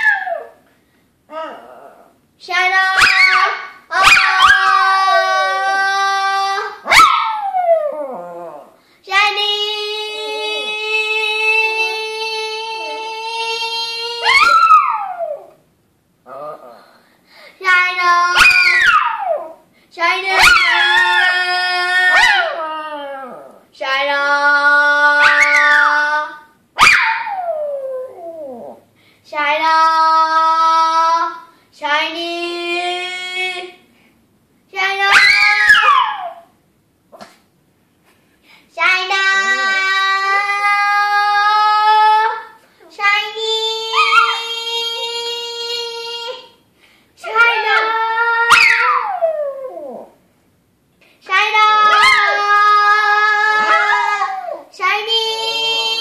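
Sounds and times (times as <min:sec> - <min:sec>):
girl singing: 0:02.4 - 0:06.9, 0:08.6 - 0:14.5, 0:17.5 - 0:18.7, 0:19.9 - 0:22.6, 0:23.6 - 0:26.6, 0:29.3 - 0:33.9, 0:38.7 - 0:46.6, 0:47.2 - 0:48.6, 0:51.2 - 0:56.0
dog howling: 0:03.0 - 0:08.7, 0:14.2 - 0:15.6, 0:20.3 - 0:23.6, 0:43.8 - 0:45.2, 0:47.2 - 0:50.2, 0:51.6 - 0:54.7.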